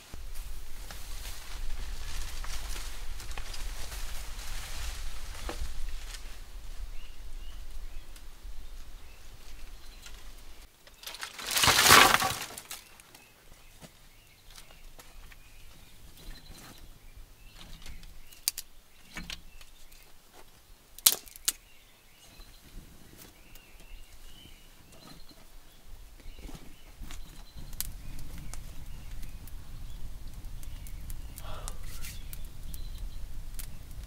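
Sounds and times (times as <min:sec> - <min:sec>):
wood fire rumbling: 0:00.0 - 0:12.8, 0:23.6 - 0:34.0
faint birdsong: 0:00.0 - 0:34.0
twigs snapping: 0:00.3 - 0:06.6, 0:09.5 - 0:13.2, 0:17.9 - 0:20.1, 0:21.0 - 0:21.6, 0:30.2 - 0:34.0.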